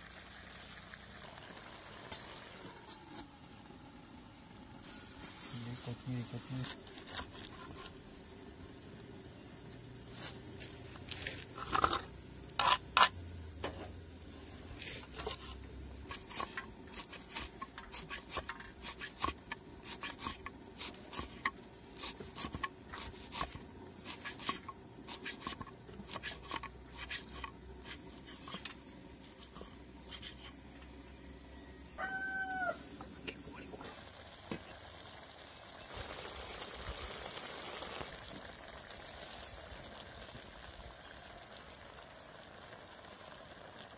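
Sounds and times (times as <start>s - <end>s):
steady hiss: 0.0s - 7.0s
knife chopping herbs on wooden board: 16.1s - 28.6s
chicken calling: 31.9s - 32.9s.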